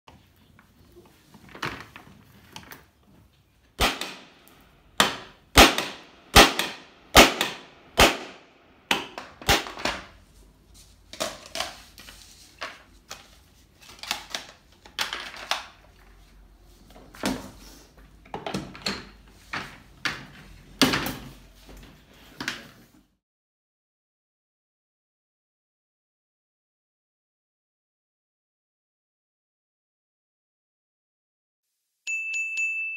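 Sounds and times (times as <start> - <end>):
knocks and clatter of chair parts: 18.2 - 22.9.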